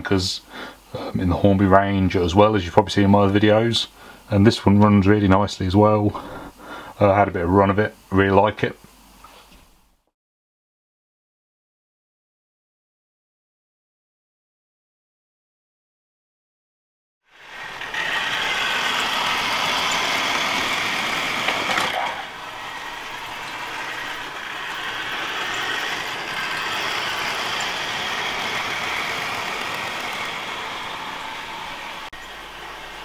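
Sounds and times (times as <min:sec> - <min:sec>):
model train motor whirring: 0:17.3 - 0:33.0
wheels rattling on rails: 0:17.4 - 0:33.0.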